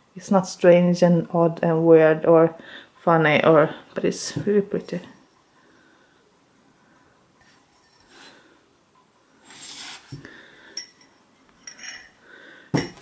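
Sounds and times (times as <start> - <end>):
mug rubbing on cloth: 9.4 - 10.2.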